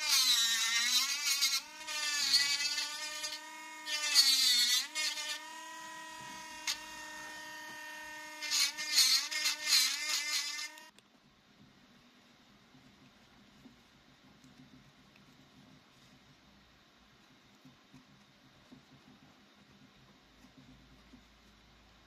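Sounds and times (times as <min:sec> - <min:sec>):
rotary tool whining: 0:00.0 - 0:10.9.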